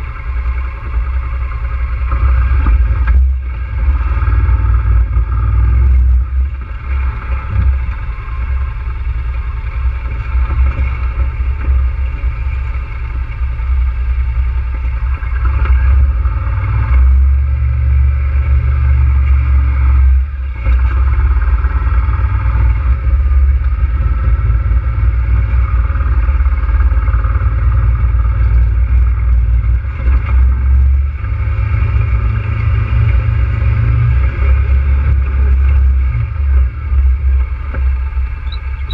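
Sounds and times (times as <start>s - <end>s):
atv engine rumbling: 0.0s - 38.9s.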